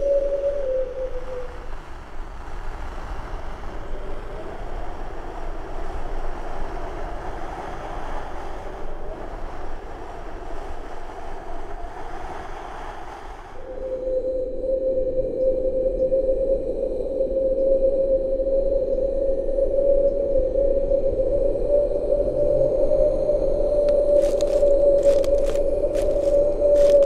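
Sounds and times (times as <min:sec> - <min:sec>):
steady rushing noise: 0:00.0 - 0:14.0, 0:23.3 - 0:27.0.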